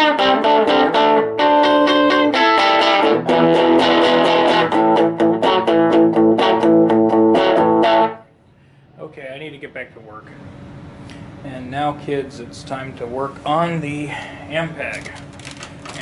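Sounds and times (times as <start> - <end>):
electric guitar notes and chords: 0.0 - 8.3.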